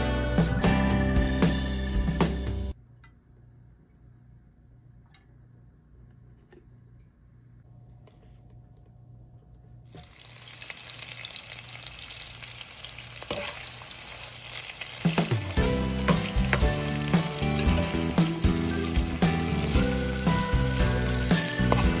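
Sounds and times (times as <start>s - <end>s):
background music: 0.0s - 2.8s, 15.1s - 22.0s
onions sizzling in hot oil: 9.9s - 22.0s.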